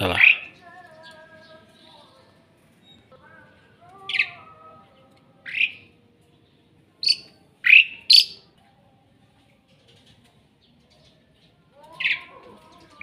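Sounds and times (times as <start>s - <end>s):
starling squawking: 7.0s - 8.4s.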